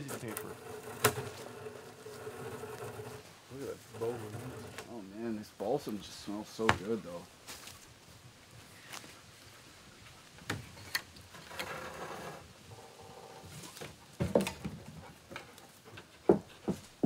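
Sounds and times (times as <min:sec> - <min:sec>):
wooden pole knocks and thumps: 0:00.0 - 0:03.2, 0:13.8 - 0:17.0.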